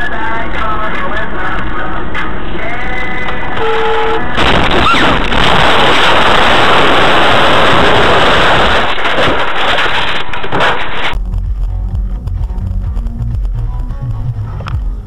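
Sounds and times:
car crash rough noise: 0:04.3 - 0:11.2.

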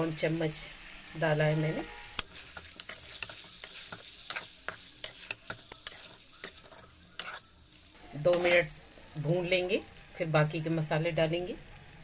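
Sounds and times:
faint sizzle: 0:00.0 - 0:12.0
metal spatula scraping a pan: 0:01.6 - 0:08.8.

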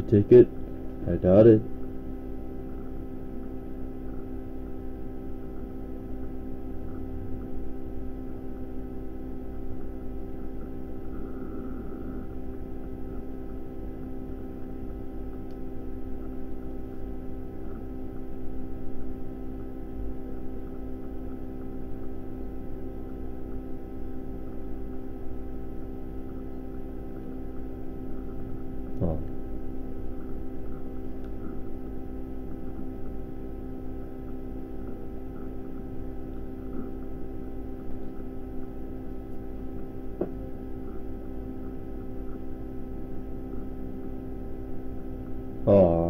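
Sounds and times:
electrical mains hum: 0:00.0 - 0:46.0.

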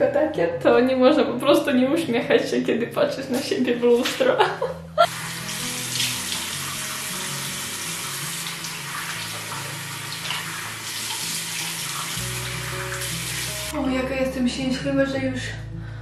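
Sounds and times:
soft background music: 0:00.0 - 0:16.0
water splashing on face: 0:05.1 - 0:13.7
tap running into sink: 0:08.1 - 0:13.6.

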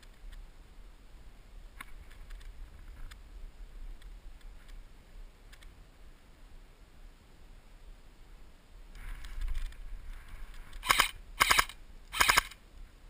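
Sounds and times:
steady low rumble: 0:00.0 - 0:13.0
faint clicks and snaps: 0:03.9 - 0:04.8, 0:05.5 - 0:05.8.

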